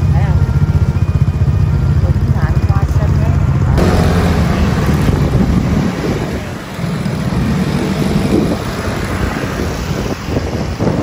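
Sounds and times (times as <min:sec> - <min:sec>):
street and traffic noise: 0:00.0 - 0:11.0
wind rumbling on microphone: 0:03.5 - 0:11.0.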